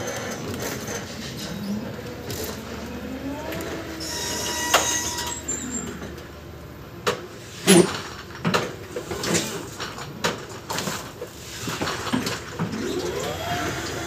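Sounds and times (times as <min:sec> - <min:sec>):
electric truck drive whine: 0:01.5 - 0:06.1, 0:12.6 - 0:14.0.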